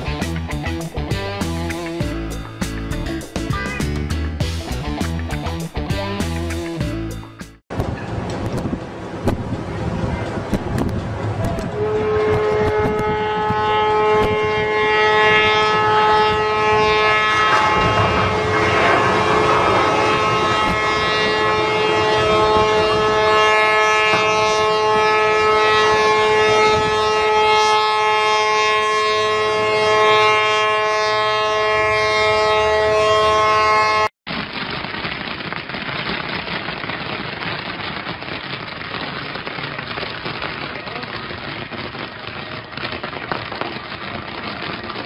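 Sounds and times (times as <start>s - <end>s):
horns sounding a held chord: 11.7s - 34.1s
hissing crackling rush: 15.8s - 26.9s, 34.3s - 45.0s.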